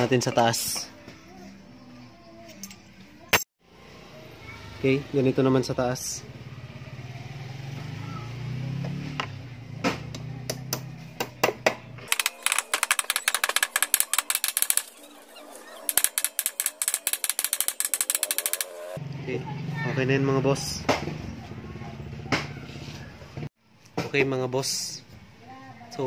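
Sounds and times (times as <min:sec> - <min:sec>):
metal-on-metal tapping: 0:12.1 - 0:15.0, 0:15.9 - 0:18.7.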